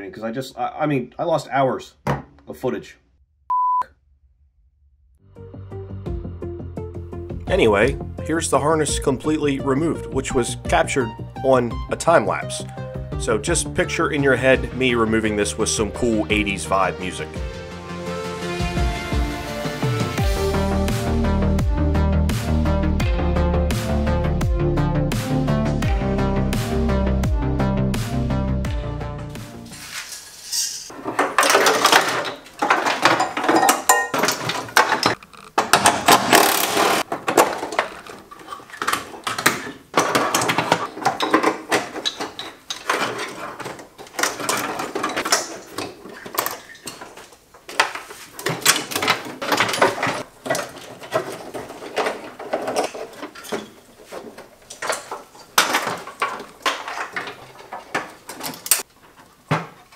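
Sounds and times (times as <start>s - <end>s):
wires rustling and knocking: 29.7s - 59.9s.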